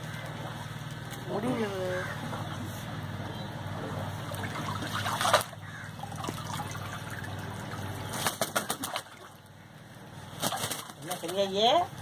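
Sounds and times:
low hum: 0.0s - 10.4s
water splashing: 4.0s - 9.6s
water dripping: 4.3s - 8.0s.

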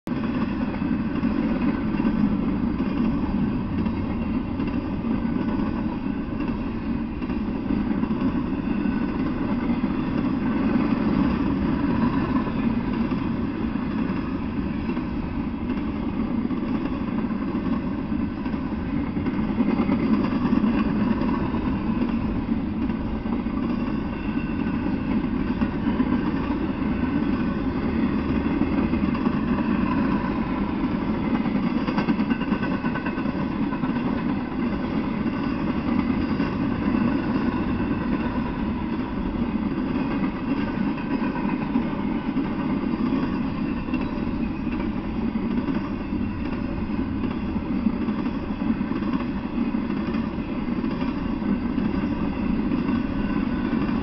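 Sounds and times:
freight train rumbling past: 0.1s - 54.0s.

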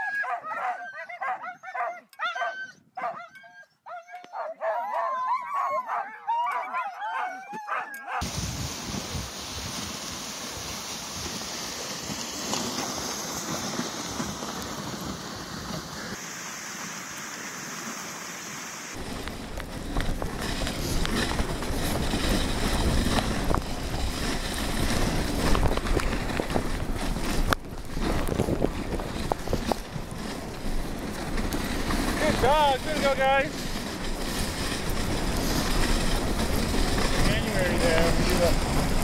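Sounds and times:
sled runners hissing on snow: 8.1s - 39.0s
wind buffeting microphone: 8.2s - 10.2s, 19.0s - 39.0s.

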